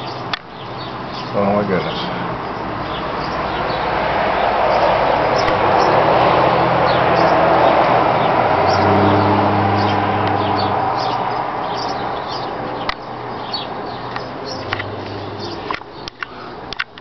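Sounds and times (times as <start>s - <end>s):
hummingbird chirps: 0.0s - 3.8s, 6.8s - 16.5s
outdoor rushing noise: 1.4s - 15.8s.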